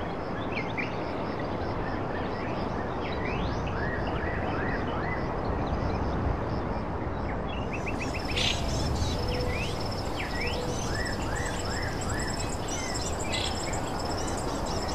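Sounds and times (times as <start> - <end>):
steady background noise: 0.0 - 14.9
small birds chirping: 7.6 - 14.9
insect trilling buzz: 8.0 - 14.9.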